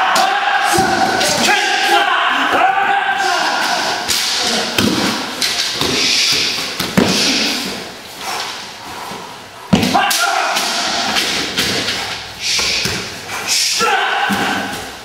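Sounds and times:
strikes and footwork: 3.2s - 15.0s.

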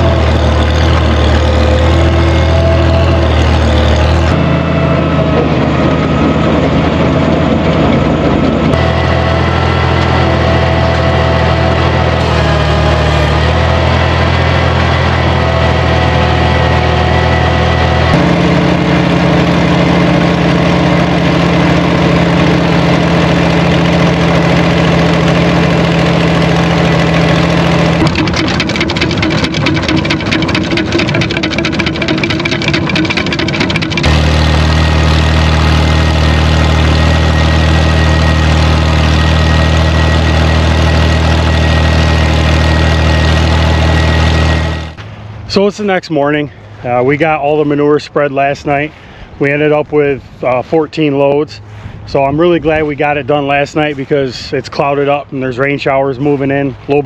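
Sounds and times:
tractor engine running: 0.0s - 57.0s
fast rattling clatter: 25.2s - 36.5s.

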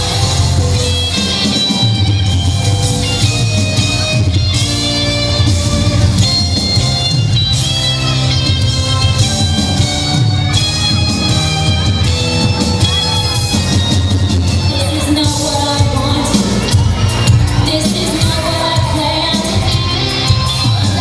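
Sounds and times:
pop-rock music over pa system: 0.0s - 21.0s.

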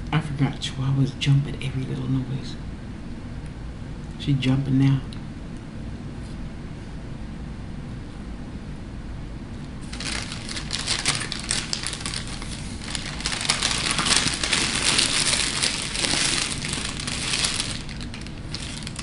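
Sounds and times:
paper wrapper crumpling: 9.8s - 19.0s.

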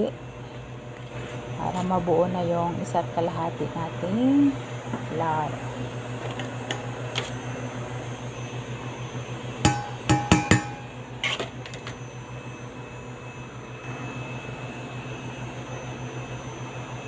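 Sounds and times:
steady low hum: 0.0s - 17.0s
metal cup knocking on steel bowl: 9.7s - 10.8s.

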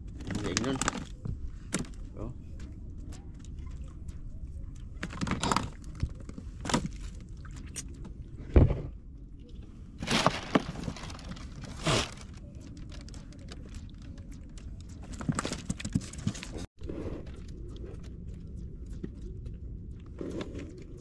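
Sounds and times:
steady low rumble: 16.8s - 21.0s.

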